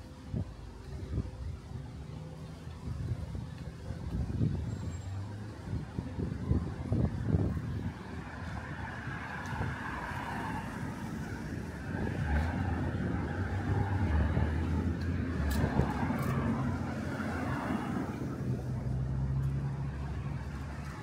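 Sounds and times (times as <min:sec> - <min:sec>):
wind buffeting microphone: 0:00.0 - 0:18.9
car passing: 0:07.0 - 0:21.0.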